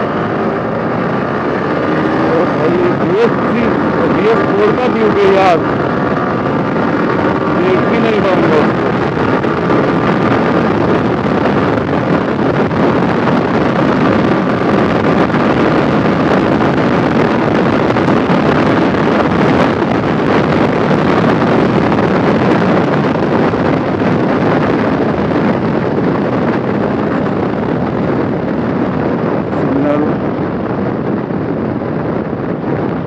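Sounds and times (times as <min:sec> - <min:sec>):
motorcycle engine running: 0:00.0 - 0:33.0
wind rushing on microphone: 0:00.0 - 0:33.0.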